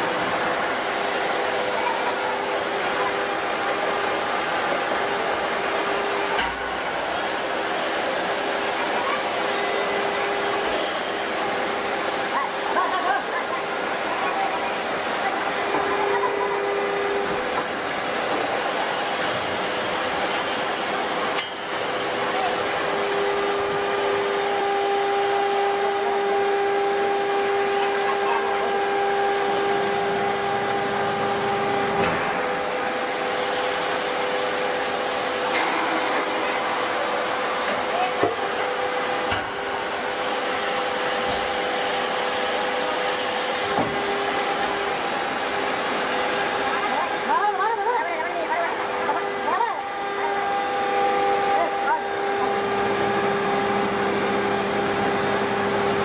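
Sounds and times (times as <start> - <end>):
forging press rushing noise: 0.0 - 56.0
machine hum: 0.0 - 56.0.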